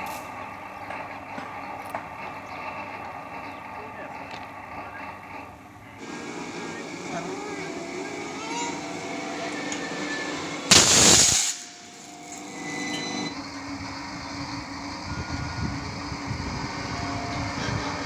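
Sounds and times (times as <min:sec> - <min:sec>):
outdoor background noise: 0:00.0 - 0:18.0
electrical arcing and sparking: 0:10.7 - 0:12.1.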